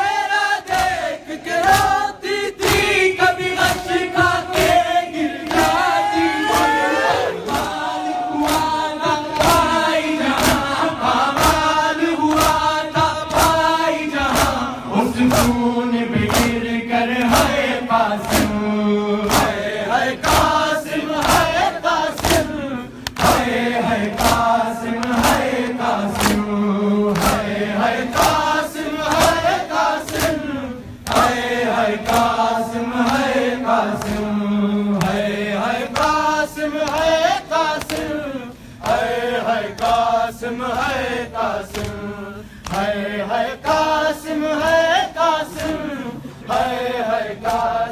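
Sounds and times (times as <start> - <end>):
men chanting in unison: 0.0 - 47.9
chest-beating slaps: 0.7 - 2.0, 2.6 - 6.8, 7.4 - 20.6, 21.2 - 34.3, 35.0 - 38.2, 41.6 - 43.0, 45.5 - 46.5.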